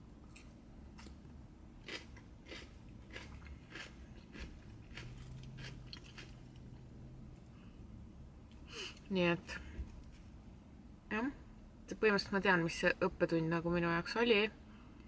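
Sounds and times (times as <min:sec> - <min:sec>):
person chewing crunchy salad: 0:00.2 - 0:07.5.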